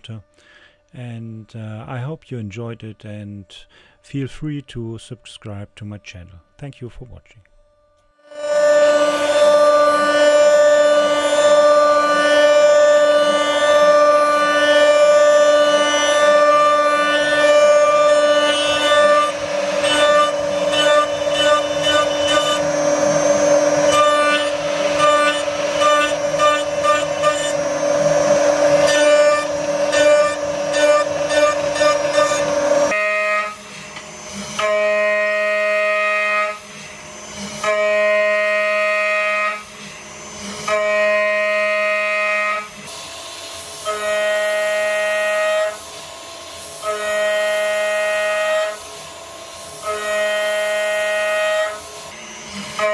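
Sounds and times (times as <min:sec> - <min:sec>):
axis drive whine: 0:07.6 - 0:52.9
spindle whining: 0:07.8 - 0:52.9
crackle of metal cutting: 0:08.8 - 0:33.0.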